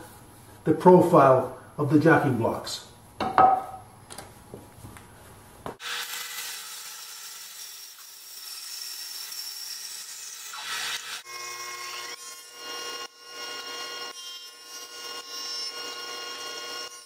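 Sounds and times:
band saw cutting wood: 5.8 - 17.0.

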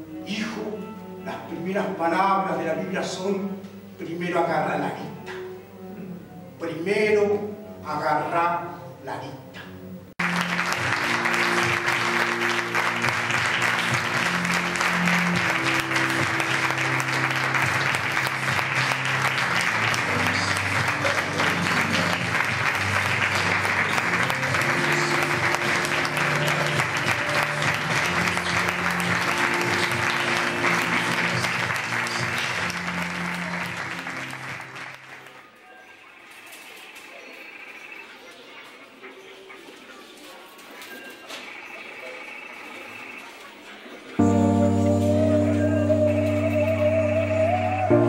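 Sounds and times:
audience applauding: 10.2 - 35.6
music of sustained low notes: 44.2 - 48.0.

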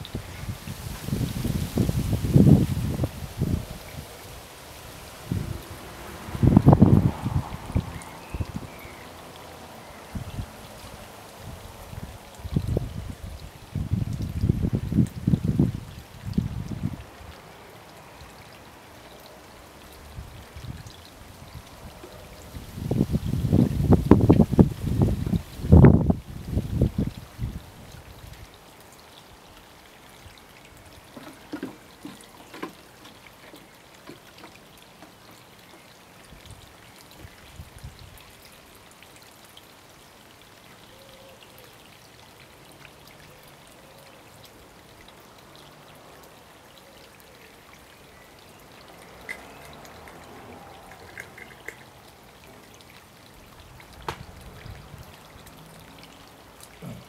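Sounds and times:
wind buffeting microphone: 0.0 - 4.3, 5.0 - 8.8, 10.1 - 10.6, 11.4 - 17.1, 20.1 - 28.4, 53.7 - 55.1
trickling water: 0.0 - 57.0.

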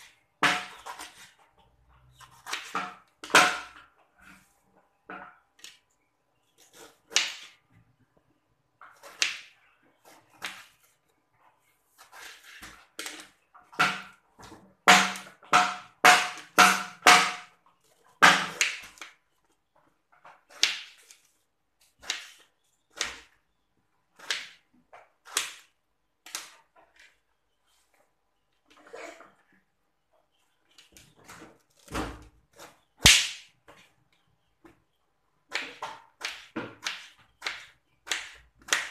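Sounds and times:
knife cutting on plastic board: 35.5 - 38.9.

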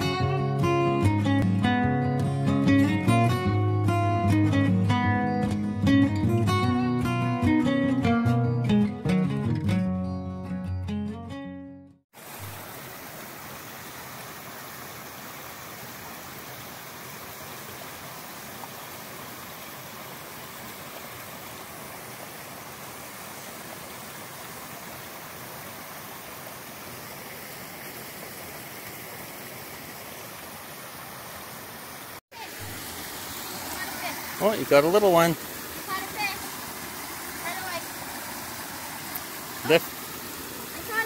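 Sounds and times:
brook running over cascade: 12.2 - 41.0.

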